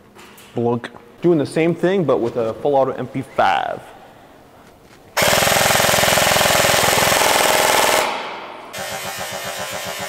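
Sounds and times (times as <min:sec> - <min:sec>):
airsoft gun full-auto burst: 0:05.2 - 0:10.0.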